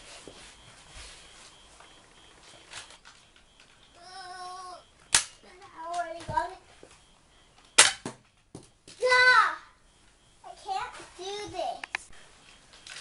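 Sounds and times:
child's drawn-out voice: 4.0 - 4.9, 9.0 - 9.8, 10.5 - 11.8
toy blaster snap: 5.1 - 5.4.

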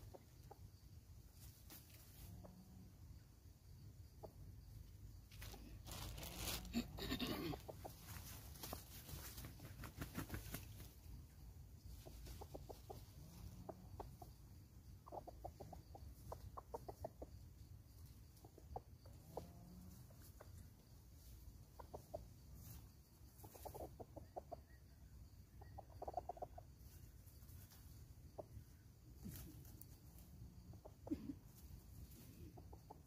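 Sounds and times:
rustle: 0.0 - 3.1, 4.3 - 24.5, 25.3 - 33.0
fowl clucking: 6.1 - 8.8, 11.9 - 17.4, 18.3 - 27.0, 27.6 - 33.0.

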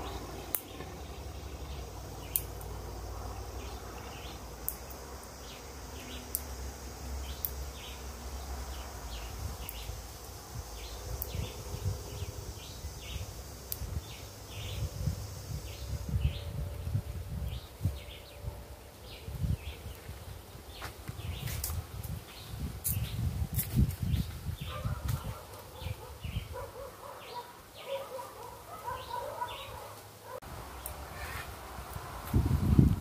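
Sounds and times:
wind rumbling on microphone: 8.3 - 26.9, 30.7 - 33.0.

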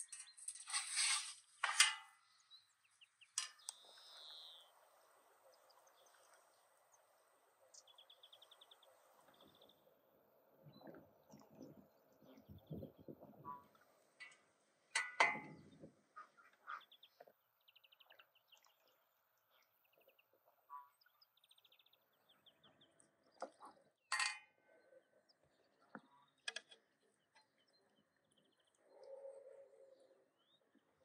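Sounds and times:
small birds chirping: 2.2 - 10.0, 10.6 - 14.4, 15.5 - 24.0
metal tongs clinking on pot: 15.0 - 15.6, 24.1 - 24.4.

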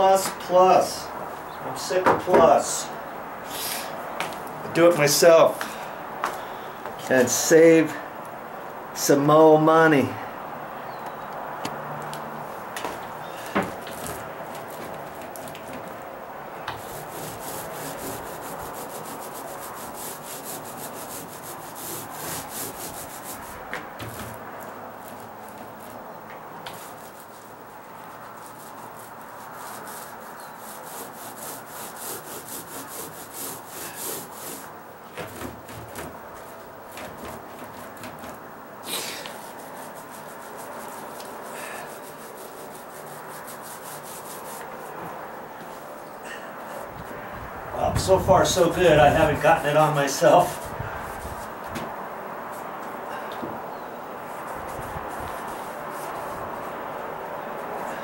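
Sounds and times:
paint roller crackling hiss: 3.4 - 4.0, 16.6 - 45.8, 48.5 - 51.7, 54.2 - 58.0.

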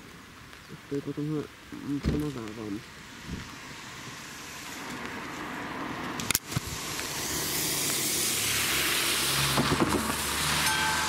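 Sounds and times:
car tyres hissing on wet road: 2.2 - 11.0.

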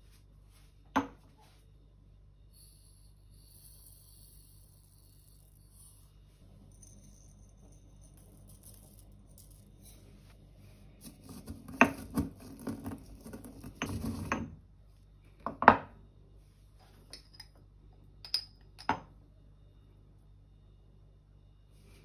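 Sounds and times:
spoon clinking on glass jar: 18.2 - 19.0.

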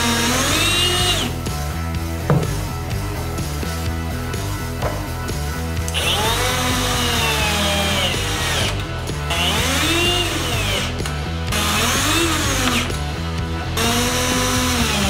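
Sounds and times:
power drill driving screws into metal: 0.0 - 1.4, 5.9 - 13.0, 13.7 - 15.0
background music with steady beat: 0.0 - 15.0.

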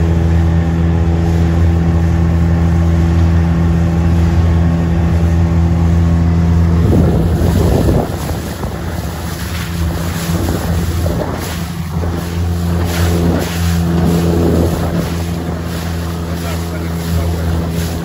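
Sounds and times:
outboard motor running: 0.0 - 18.0
water rushing along hull: 0.0 - 18.0
wind buffeting microphone: 0.4 - 18.0.

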